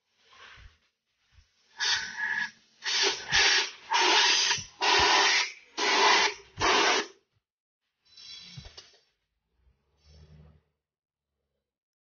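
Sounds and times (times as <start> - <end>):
compressed air blasts: 1.8 - 7.2.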